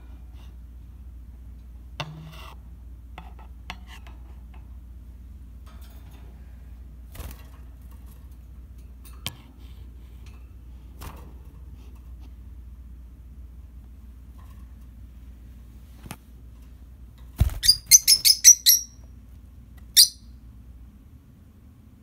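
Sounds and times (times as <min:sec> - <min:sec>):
steady low hum: 0:00.0 - 0:22.0
clicks and rattles in wire cage: 0:05.6 - 0:06.4.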